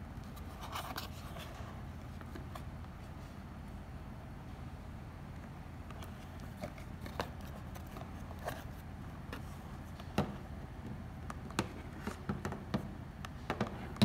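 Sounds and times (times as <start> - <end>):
plastic and cardboard handling: 0.2 - 3.4, 5.9 - 10.5.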